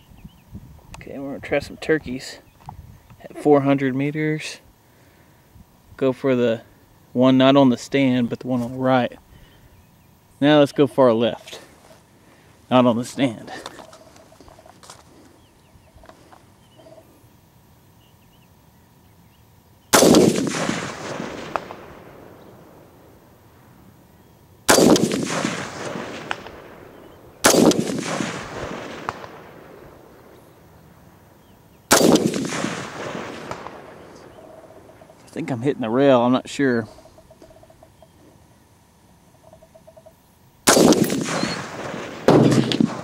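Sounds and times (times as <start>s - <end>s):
rifle shots: 19.9s - 23.2s, 24.7s - 30.6s, 31.9s - 34.9s, 40.6s - 43.0s
rolling echo: 20.0s - 23.9s, 24.7s - 35.4s, 40.7s - 43.0s.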